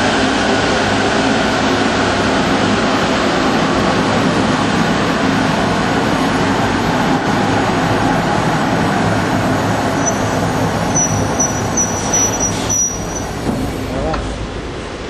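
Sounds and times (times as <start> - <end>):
conveyor mechanical hum: 0.0 - 15.0
high-pitched chirps: 10.0 - 13.3.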